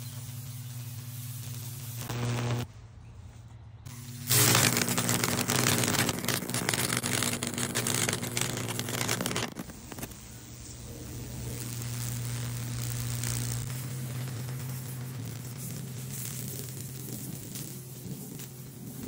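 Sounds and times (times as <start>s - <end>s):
crackling sizzle of arcing current: 0.0s - 2.7s, 3.9s - 19.0s
steady electrical hum: 0.0s - 2.8s, 3.9s - 19.0s.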